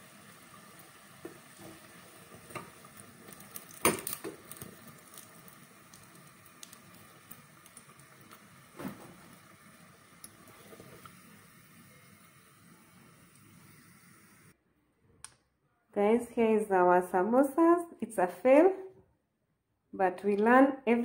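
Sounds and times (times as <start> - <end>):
oil sizzling: 0.0 - 14.6.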